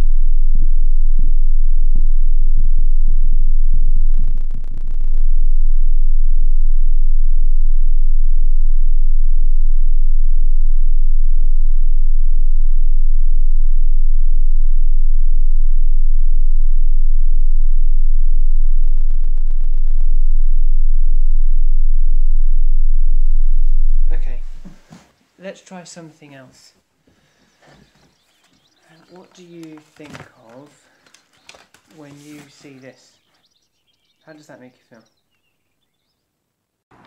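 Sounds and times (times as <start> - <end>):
low sine-tone drone: 0.0 - 24.8
rapid crackling: 4.1 - 5.3, 18.8 - 20.2, 27.2 - 33.3.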